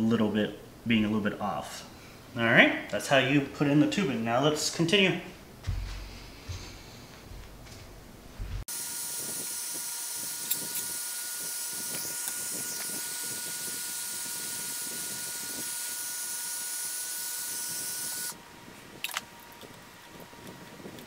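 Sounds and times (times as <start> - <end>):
heat gun hissing and whining: 8.7 - 18.5.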